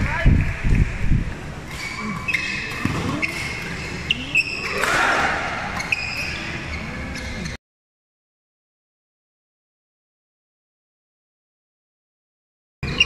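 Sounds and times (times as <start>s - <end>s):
shoes squeaking on court floor: 1.6s - 7.6s
rackets hitting shuttlecock: 4.6s - 6.3s.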